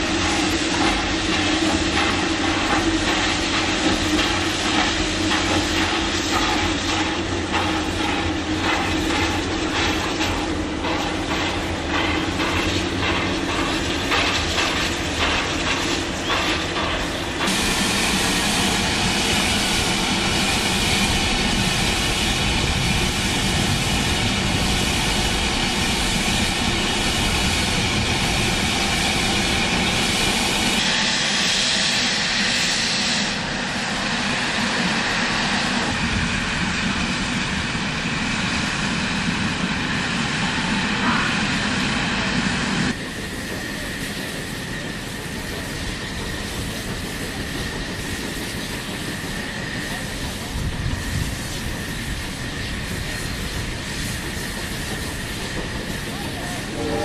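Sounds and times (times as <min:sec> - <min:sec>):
rush of steam: 0:00.0 - 0:57.0
steam locomotive exhaust beating: 0:00.0 - 0:57.0
steam venting hiss: 0:00.0 - 0:57.0.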